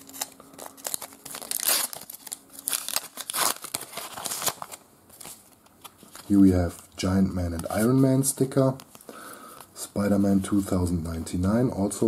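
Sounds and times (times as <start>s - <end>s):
paper wrapper tearing and crinkling: 0.0s - 6.8s.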